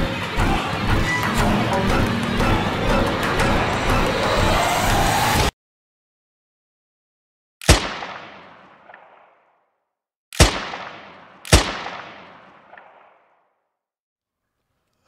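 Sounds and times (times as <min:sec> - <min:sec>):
echoing gunshots: 0:07.6 - 0:09.7, 0:10.4 - 0:13.6.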